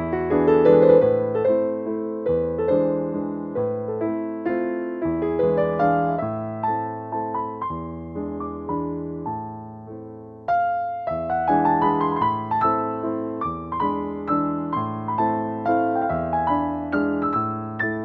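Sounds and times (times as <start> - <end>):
slow piano music: 0.0 - 18.0.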